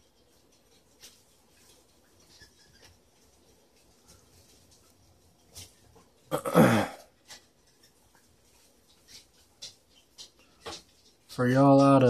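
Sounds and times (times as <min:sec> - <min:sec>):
person grunting: 0:06.3 - 0:07.0.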